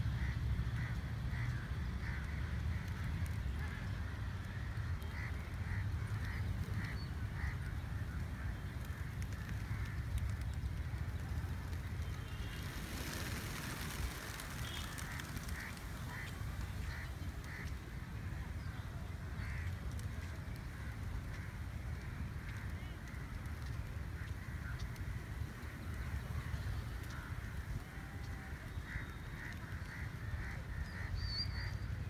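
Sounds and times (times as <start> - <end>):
pigeon wings flapping: 8.4 - 17.8.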